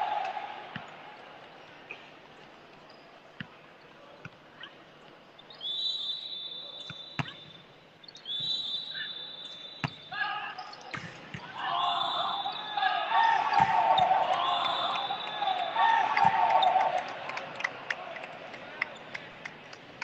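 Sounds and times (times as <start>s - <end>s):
referee's whistle blasts: 5.6s - 7.6s, 8.3s - 10.6s, 11.6s - 16.8s.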